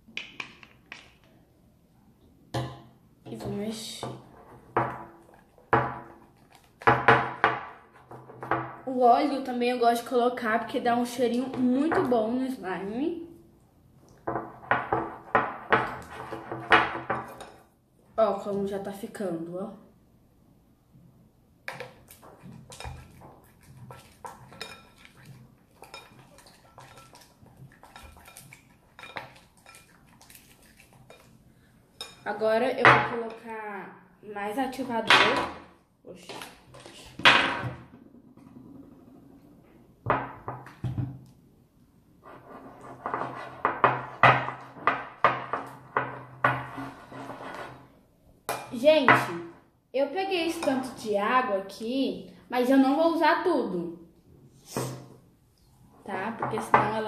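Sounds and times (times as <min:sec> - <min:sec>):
spatula stirring slime in glass bowl: 0:03.3 - 0:08.3, 0:14.4 - 0:17.7, 0:21.6 - 0:33.6, 0:50.2 - 0:51.4
utensil clinking in glass bowl: 0:22.4 - 0:31.3.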